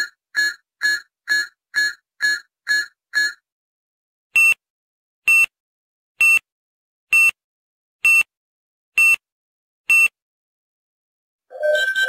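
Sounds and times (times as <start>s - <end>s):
short high-pitched electronic beeps: 11.5s - 12.0s.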